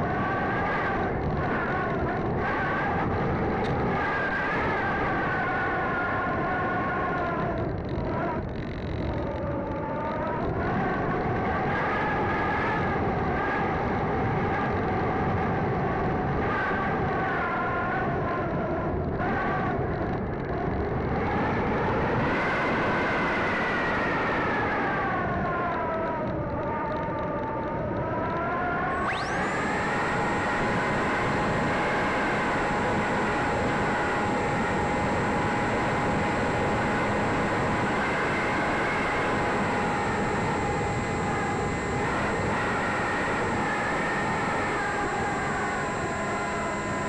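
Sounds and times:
electric motor and propeller whining: 0.0s - 9.2s, 21.0s - 25.9s, 28.4s - 47.0s
wind rush on microphone: 0.0s - 47.0s
steady high whistle: 29.0s - 47.0s.

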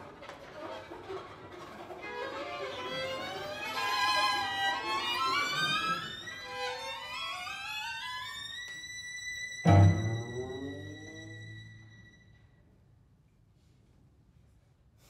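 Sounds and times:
violins playing sliding glissandi: 2.5s - 12.4s.

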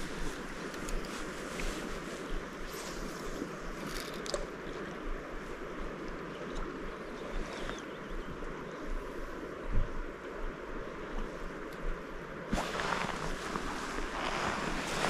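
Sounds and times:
small clicks: 3.8s - 4.5s
water washing along the shore: 11.2s - 15.0s.

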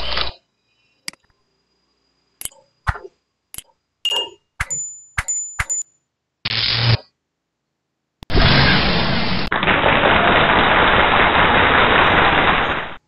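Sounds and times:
bell-like ding: 4.1s - 6.0s
noise burst: 8.2s - 13.0s.

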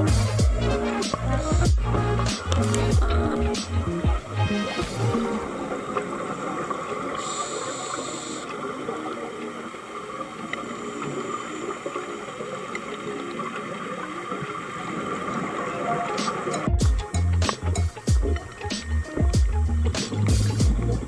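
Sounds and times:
diver exhaust bubbles: 0.0s - 6.1s
underwater water noise: 0.0s - 21.0s
regulator breath hiss: 7.1s - 8.6s.

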